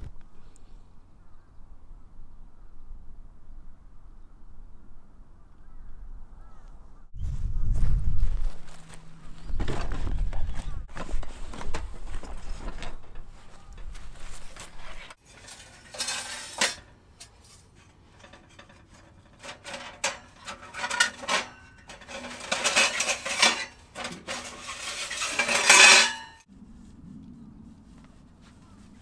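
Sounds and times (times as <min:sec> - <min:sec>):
metal stove parts clinking: 0:11.6 - 0:26.5.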